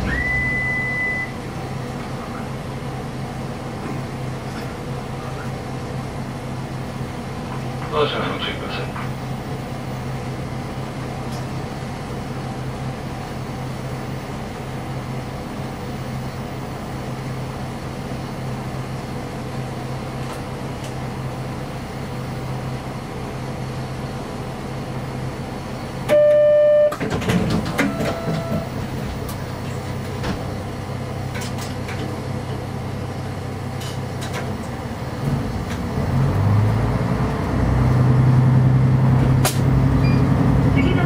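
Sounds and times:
train clanking and squealing: 0.0s - 1.4s, 7.5s - 9.2s, 26.1s - 30.7s, 39.3s - 41.0s
diesel engine drone: 0.0s - 41.0s.

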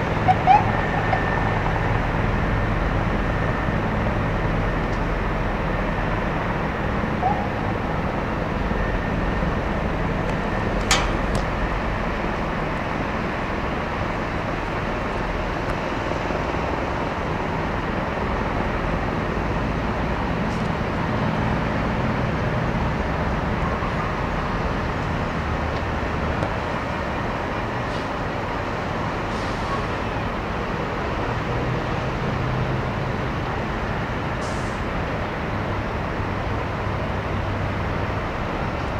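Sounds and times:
engines and heavy machinery: 0.0s - 38.9s
sharp click: 10.8s - 11.5s.

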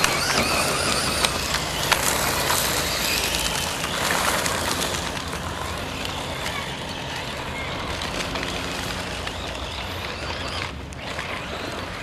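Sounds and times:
electric motors whining: 0.0s - 12.0s
gravel spraying from tyres: 0.0s - 12.0s.

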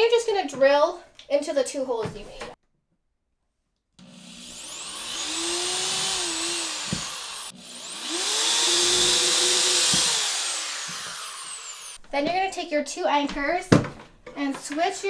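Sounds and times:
electric drill boring into wall: 4.0s - 12.0s.

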